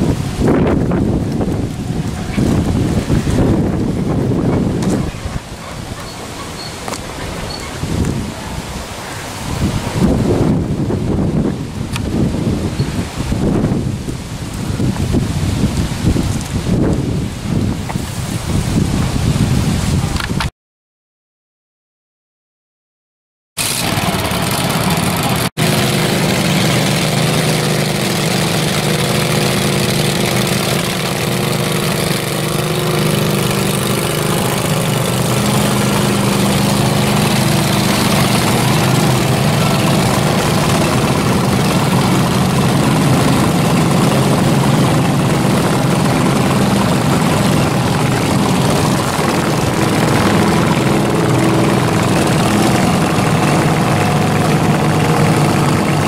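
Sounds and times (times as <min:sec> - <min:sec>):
lawn mower engine running: 0:00.0 - 0:08.8, 0:23.6 - 0:56.0.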